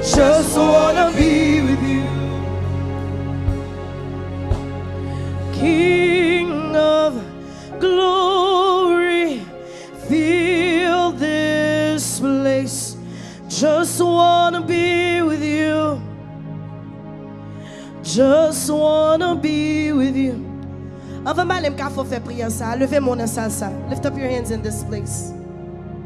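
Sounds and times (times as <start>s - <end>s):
solo voice singing gospel: 0.0s - 3.7s, 5.3s - 16.0s
sustained instrumental backing: 0.0s - 26.0s.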